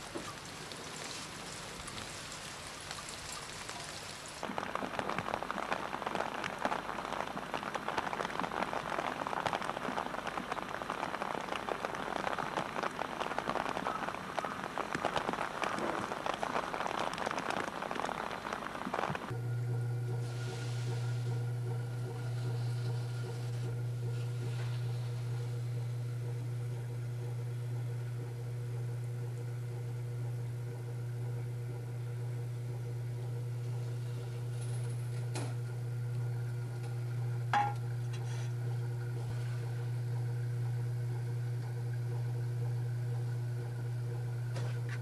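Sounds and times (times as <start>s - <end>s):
steady low hum: 19.3s - 45.0s.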